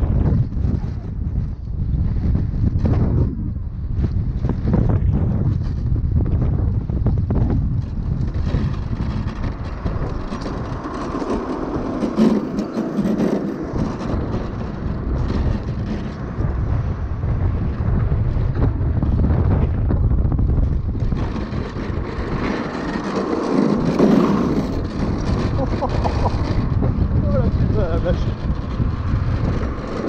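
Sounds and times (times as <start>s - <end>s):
wheels rolling rough rumble: 0.0s - 30.0s
wind noise on microphone: 0.0s - 30.0s.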